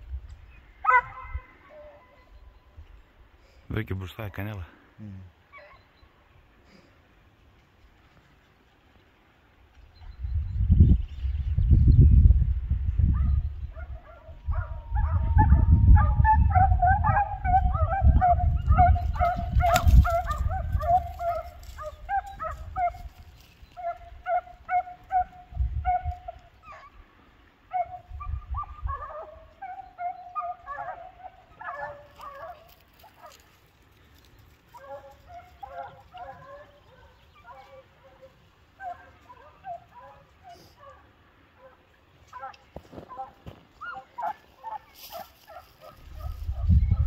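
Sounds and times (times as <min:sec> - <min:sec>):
hounds baying: 0:00.8 - 0:02.5, 0:05.5 - 0:06.1, 0:13.1 - 0:47.0.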